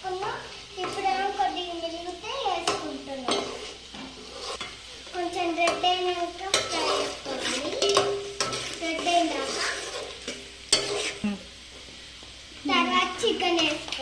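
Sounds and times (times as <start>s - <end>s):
onions sizzling in oil: 0.0s - 14.0s
ladle scraping metal pot: 3.3s - 4.7s, 6.5s - 11.2s.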